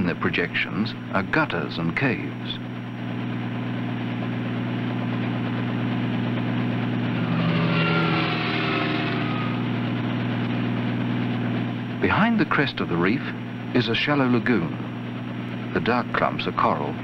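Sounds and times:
aircraft engine droning: 0:01.0 - 0:17.0
faint high whines sliding down: 0:06.7 - 0:11.6.

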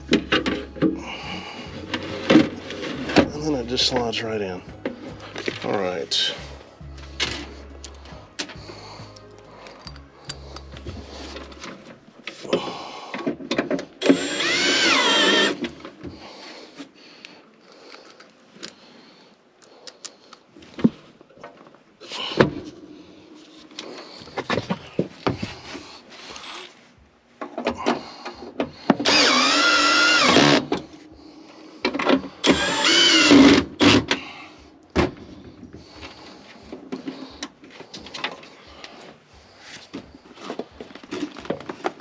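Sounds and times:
metal knocks and clinks: 0:09.8 - 0:10.8
cordless drill driving screws: 0:14.0 - 0:15.7, 0:29.0 - 0:30.8, 0:32.4 - 0:34.2.

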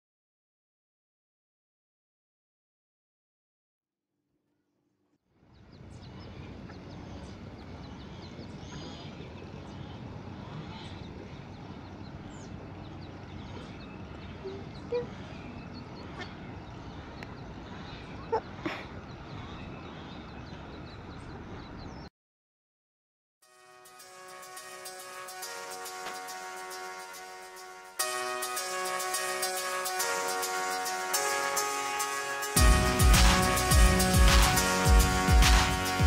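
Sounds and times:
steady outdoor hiss: 0:05.4 - 0:22.0, 0:23.7 - 0:36.0
ducklings peeping: 0:05.7 - 0:22.1.

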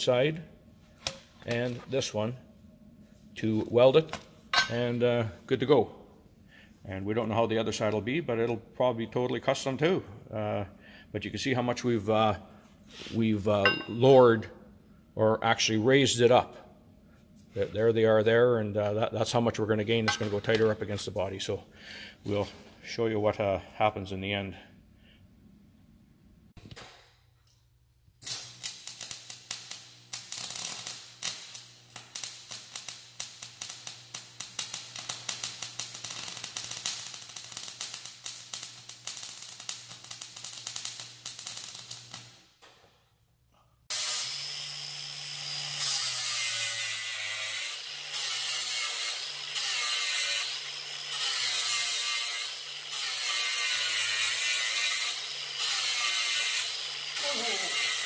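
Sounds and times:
arc welding crackle and hum: 0:28.2 - 0:42.6, 0:43.9 - 0:58.0
angle grinder on steel: 0:43.9 - 0:58.0.

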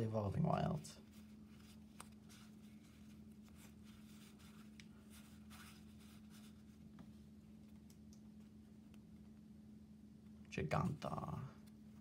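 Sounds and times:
cards swishing against each other: 0:01.0 - 0:09.1.

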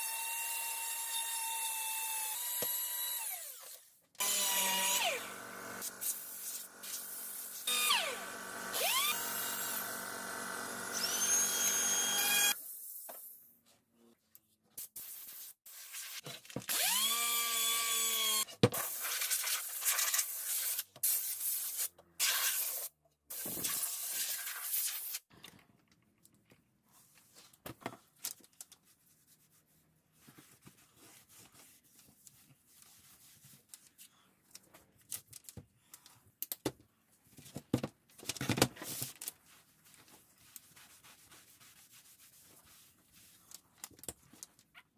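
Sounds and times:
rotary tool whining: 0:02.3 - 0:12.6.

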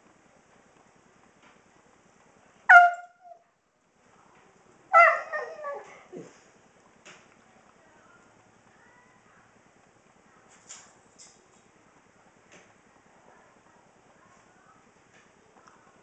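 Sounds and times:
dog howling calls: 0:02.7 - 0:03.4, 0:04.9 - 0:06.1.

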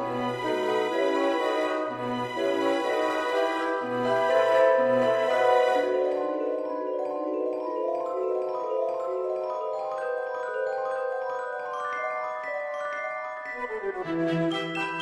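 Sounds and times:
mallet percussion melody: 0:04.6 - 0:13.9.

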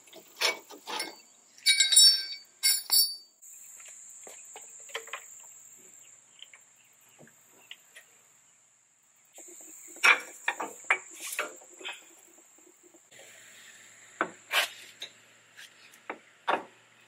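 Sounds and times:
metallic clinks and knocks: 0:00.8 - 0:03.3
insects chirping: 0:00.9 - 0:13.1.

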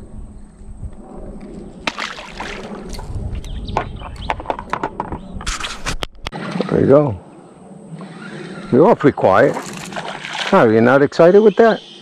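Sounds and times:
water splashing against boat: 0:01.9 - 0:03.2, 0:09.4 - 0:10.8.

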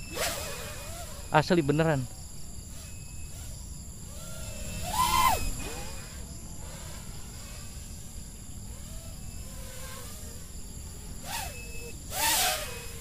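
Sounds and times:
quadcopter motor whine: 0:00.0 - 0:13.0.

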